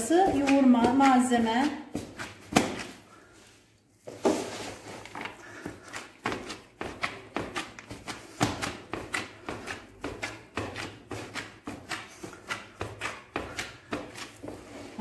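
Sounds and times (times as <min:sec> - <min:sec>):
wet slaps of kneaded meat: 0:00.0 - 0:03.0, 0:05.9 - 0:14.3.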